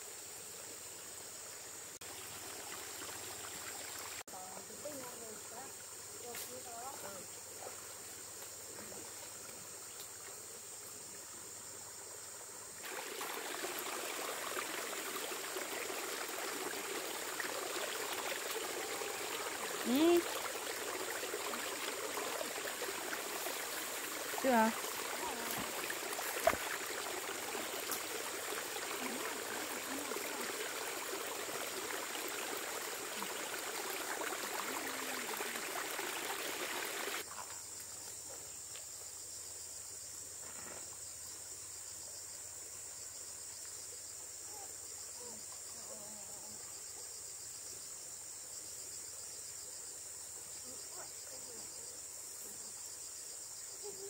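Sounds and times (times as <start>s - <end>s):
running water hissing: 0.0s - 37.3s
insects chirring: 0.0s - 54.0s.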